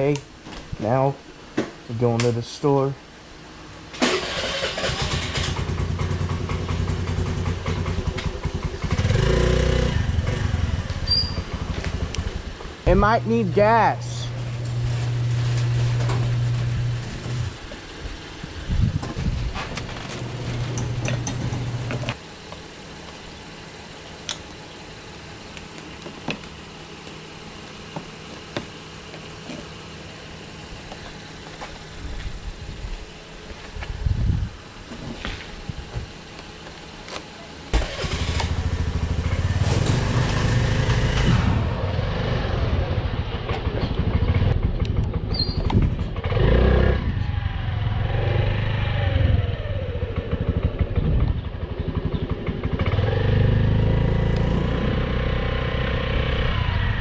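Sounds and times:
motorcycle engine humming: 3.0 - 57.0.

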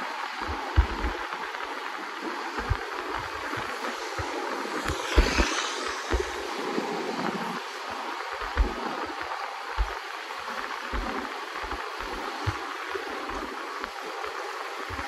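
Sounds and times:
wind buffeting microphone: 0.0 - 15.0
outdoor rushing noise: 2.0 - 10.0.

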